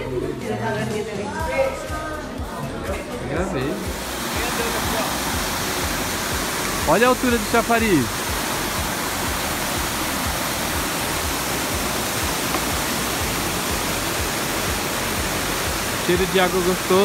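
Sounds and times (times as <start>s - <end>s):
fountain water splashing: 3.7s - 17.0s.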